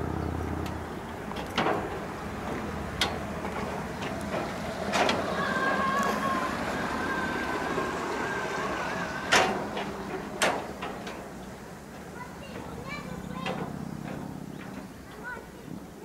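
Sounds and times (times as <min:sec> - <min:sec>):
footsteps on metal grating: 0:00.5 - 0:06.4, 0:09.3 - 0:15.5.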